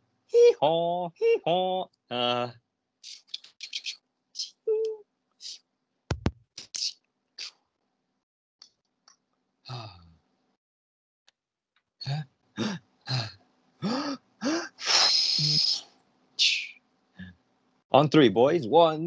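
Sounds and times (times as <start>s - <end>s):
person making clipped syllables: 0.4s - 7.6s, 12.0s - 17.3s
person grunting: 2.1s - 2.5s, 9.7s - 10.0s, 12.0s - 15.6s
person breathy hiss: 13.8s - 15.8s.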